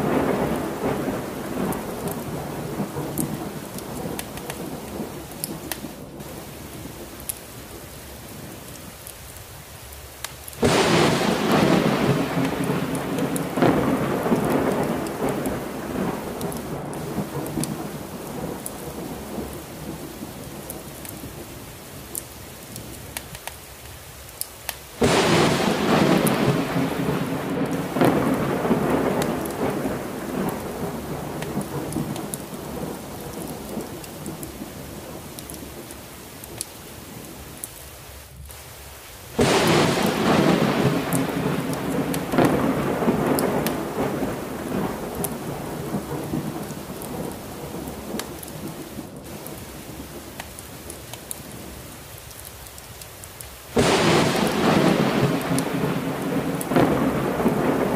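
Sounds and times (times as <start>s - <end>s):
thunder claps and rumble: 0.0s - 7.1s, 10.6s - 21.5s, 25.0s - 36.7s, 39.4s - 51.7s, 53.8s - 57.9s
heavy rain: 0.0s - 57.9s.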